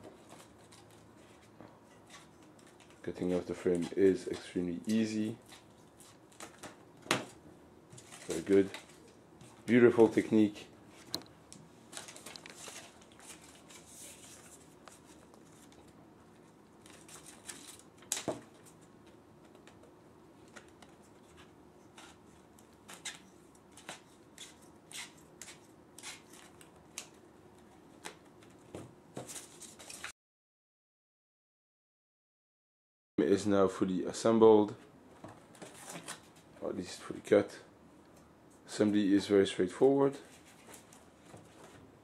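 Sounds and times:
soft handling rustles: 7.3 - 25.6, 38.5 - 42.0.

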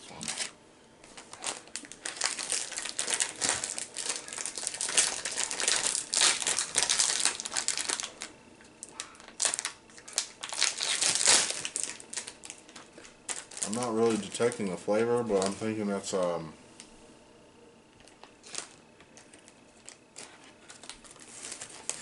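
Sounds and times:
plastic candy packet crinkling: 1.2 - 16.2, 18.0 - 22.0.

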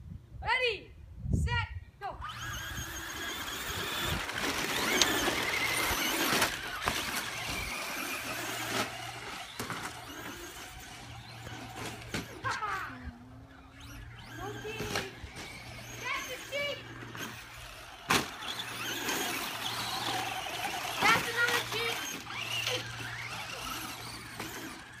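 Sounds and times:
radio-controlled car motor whine: 2.2 - 25.0
tyres scrabbling on dirt: 2.3 - 25.0.

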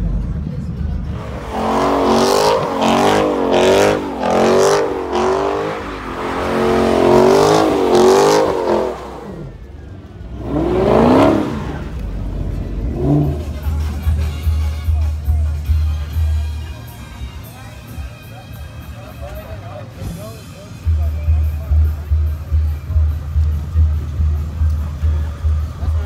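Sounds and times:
car engine revving hard: 1.1 - 14.2.

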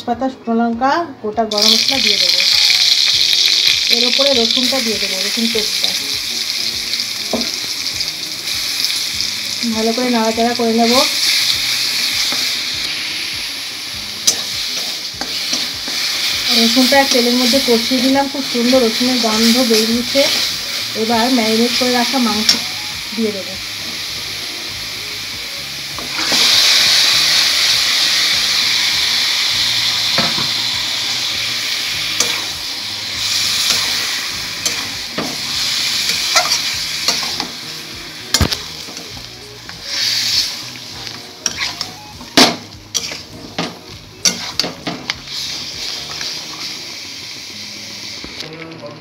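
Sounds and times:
meat sizzling in hot oil: 1.5 - 48.5
metal spatula scraping pan: 32.1 - 32.6, 33.4 - 37.5, 41.4 - 42.1, 42.9 - 43.6, 44.2 - 46.2.

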